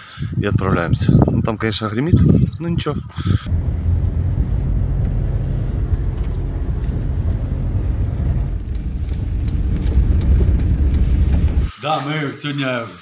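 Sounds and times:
vehicle engine and road rumble: 0:03.4 - 0:11.7.

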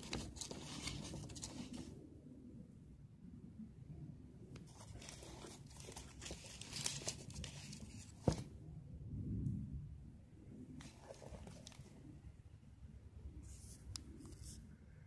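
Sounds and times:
paper and tape crinkling: 0:00.0 - 0:01.9, 0:04.7 - 0:08.4.

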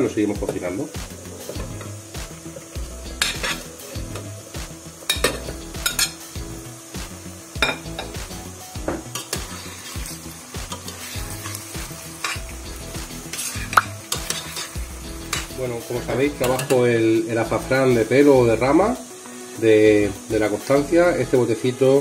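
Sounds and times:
meat sizzling in hot oil: 0:00.0 - 0:22.0
metal spoon clinking on pot: 0:16.4 - 0:16.8.

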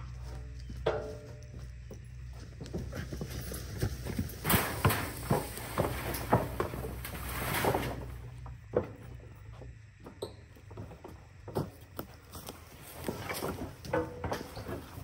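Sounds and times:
carcass dragged across deck: 0:04.8 - 0:08.2.

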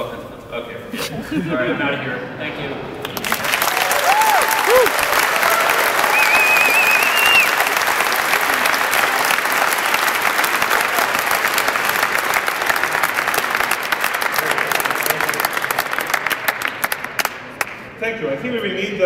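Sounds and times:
audience applauding: 0:03.0 - 0:17.9
audience cheering: 0:03.1 - 0:16.2.

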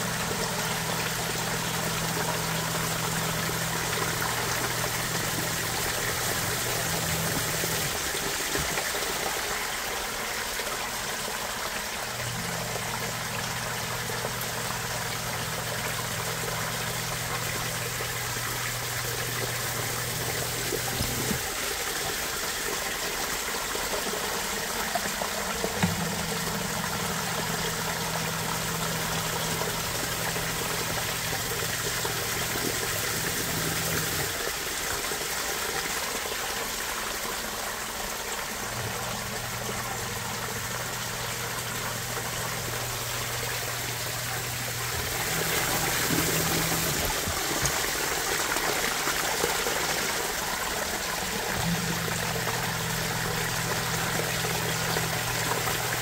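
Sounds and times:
sump pump humming: 0:00.0 - 0:56.0
water trickling into a pit: 0:00.0 - 0:56.0.

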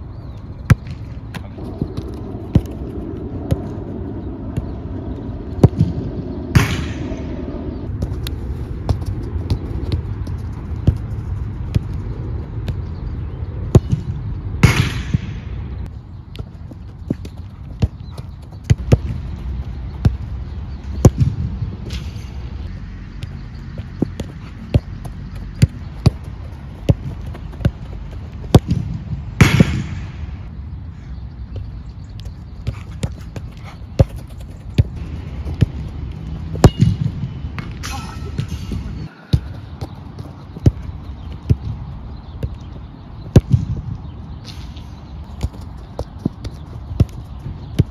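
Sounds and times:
low rumble: 0:01.1 - 0:15.9.

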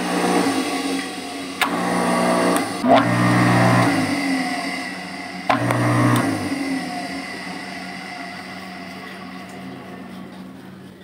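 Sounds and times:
pump motor electric hum: 0:00.0 - 0:11.0.

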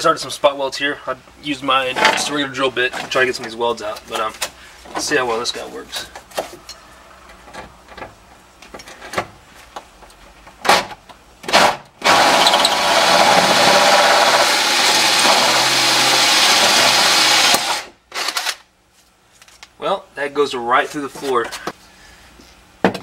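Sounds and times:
cordless drill cutting metal: 0:12.0 - 0:18.4.

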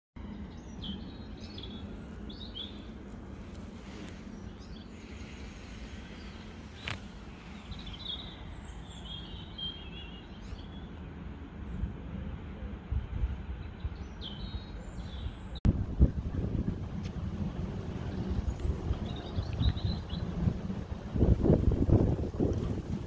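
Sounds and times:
small birds chirping: 0:00.3 - 0:11.2, 0:13.5 - 0:15.6, 0:17.4 - 0:20.6
wind rumbling on microphone: 0:00.4 - 0:23.0.

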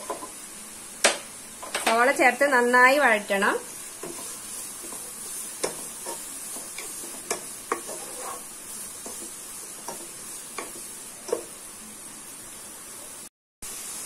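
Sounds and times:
onions sizzling in hot oil: 0:00.0 - 0:14.0
spatula knocking and scraping pan: 0:01.1 - 0:02.0, 0:03.9 - 0:11.6.

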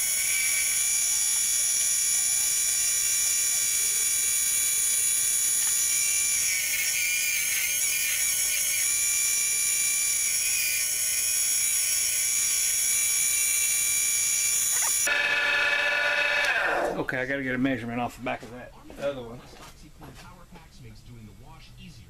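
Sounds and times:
gouge shaving spinning wood: 0:00.0 - 0:16.9
lathe motor whine: 0:00.0 - 0:17.0.

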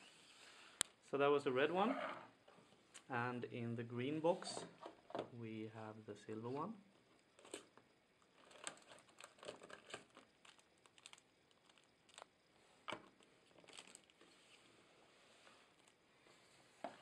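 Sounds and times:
plastic wrap crinkling: 0:08.3 - 0:14.6.

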